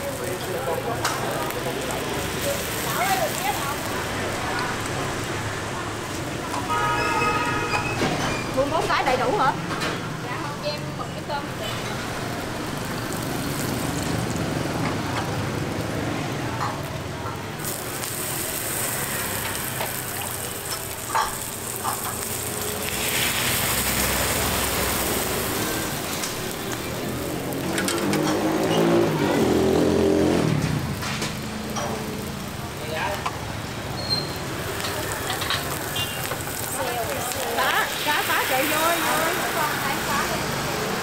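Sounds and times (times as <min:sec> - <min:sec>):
batter sizzling in hot pans: 0:00.0 - 0:41.0
street traffic: 0:00.0 - 0:41.0
motor vehicle passing: 0:11.4 - 0:41.0.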